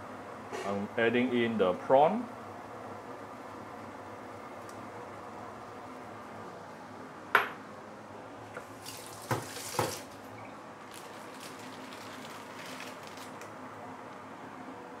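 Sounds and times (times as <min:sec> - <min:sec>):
prawns splashing into broth: 0:08.7 - 0:10.2.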